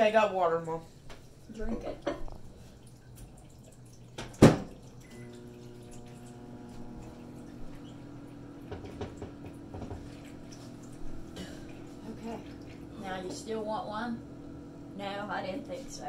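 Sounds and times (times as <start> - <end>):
appliance electrical hum: 0.0 - 16.0.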